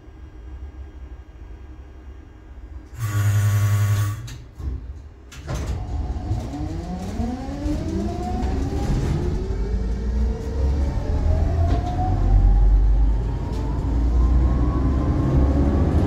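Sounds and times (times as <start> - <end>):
door-closing warning buzzer: 2.9 - 4.4
tram traction motor whine: 2.9 - 4.5.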